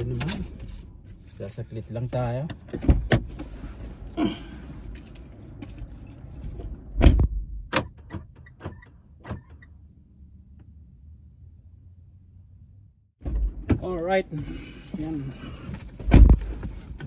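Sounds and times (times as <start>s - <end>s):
car door shutting: 7.0s - 9.6s.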